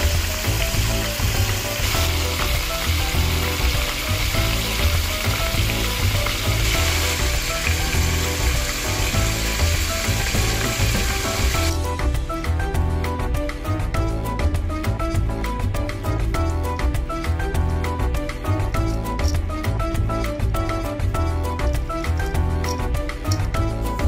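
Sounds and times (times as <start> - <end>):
meat sizzling in a pot: 0.0 - 12.6
background music with low beat: 0.0 - 24.0.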